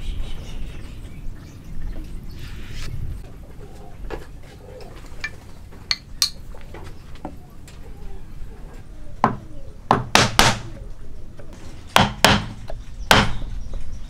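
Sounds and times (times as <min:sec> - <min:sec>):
hand tools clinking: 0:05.2 - 0:06.5
hammer striking chisel: 0:12.0 - 0:13.4.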